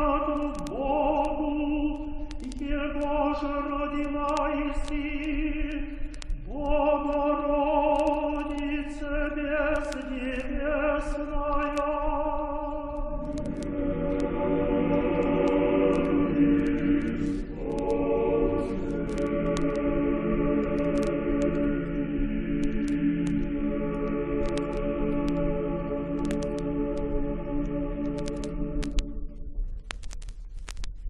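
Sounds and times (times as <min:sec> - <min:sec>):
choir chanting slowly: 0:06.5 - 0:29.2.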